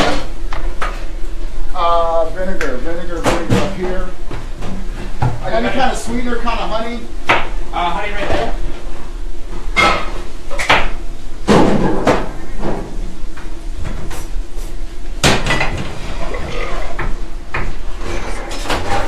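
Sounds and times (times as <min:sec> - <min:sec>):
steady low hum: 0:00.0 - 0:19.0
pots and pans clanking: 0:09.7 - 0:10.9, 0:15.2 - 0:19.0.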